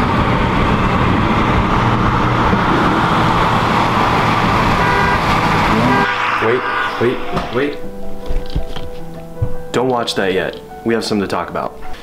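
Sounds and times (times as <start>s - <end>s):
car engine and road noise: 0.0s - 9.6s.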